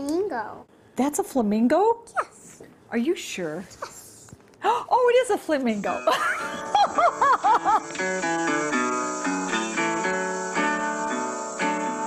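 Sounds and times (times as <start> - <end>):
person laughing: 6.1 - 8.0.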